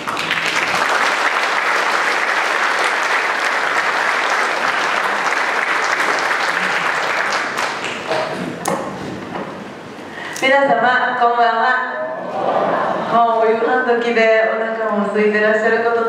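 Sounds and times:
audience clapping: 0.0s - 8.9s.

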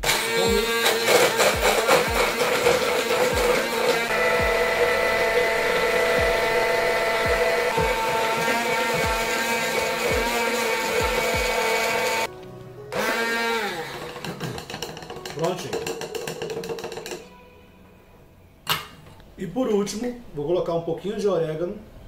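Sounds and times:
stick blender running: 0.0s - 12.3s, 12.9s - 17.2s.

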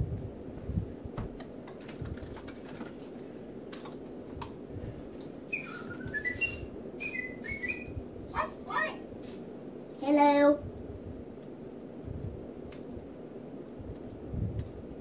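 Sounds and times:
steady room hum: 0.0s - 15.0s
person whistling rising notes: 5.5s - 8.0s.

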